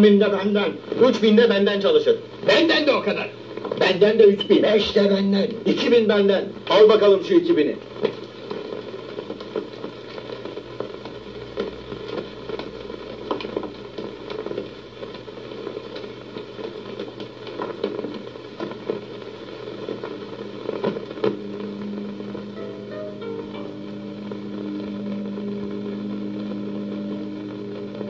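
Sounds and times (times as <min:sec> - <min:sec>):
film soundtrack crackle and hiss: 0:00.0 - 0:28.0
faint irregular ticks: 0:07.8 - 0:28.0.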